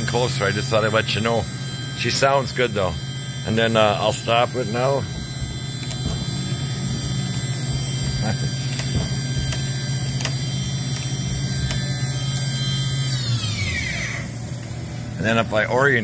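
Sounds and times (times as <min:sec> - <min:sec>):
low hum: 0:00.0 - 0:16.0
machine spindle whining: 0:00.0 - 0:16.0.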